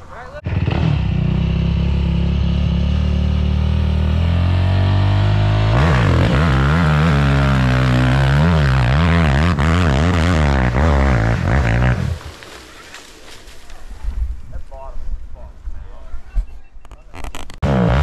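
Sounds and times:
engine revving: 0.4 - 12.5, 17.4 - 18.0.

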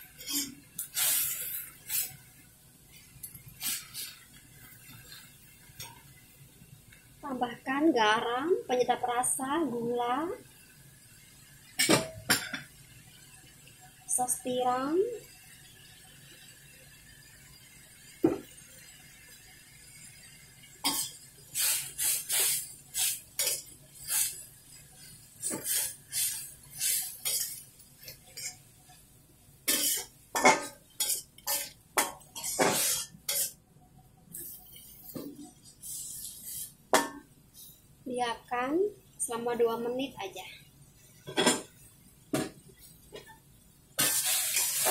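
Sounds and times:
metal spatula scraping a wok: 0.1 - 2.2, 20.9 - 28.6, 29.6 - 33.6, 34.3 - 37.7, 44.0 - 44.9.

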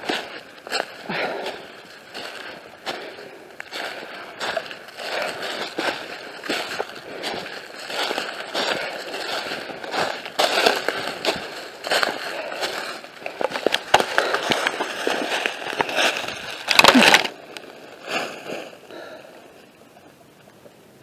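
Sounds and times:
footsteps crunching through dry leaves: 0.0 - 18.8
camera scraping and rustling: 4.5 - 17.7.

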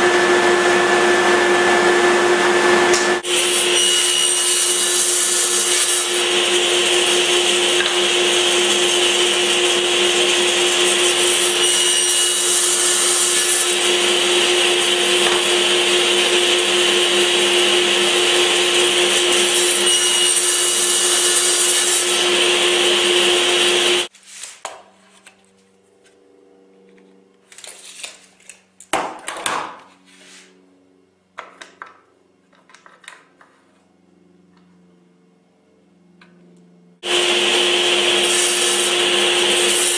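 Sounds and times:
power tool whining: 0.0 - 24.1, 37.0 - 39.9.

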